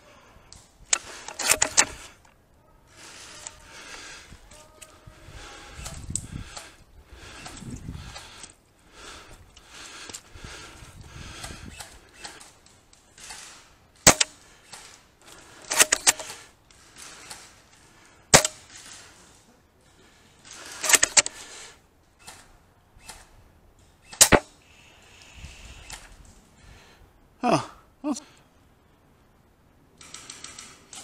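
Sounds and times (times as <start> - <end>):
airsoft gunshots: 14.0 - 14.4, 18.3 - 18.7, 24.2 - 24.5.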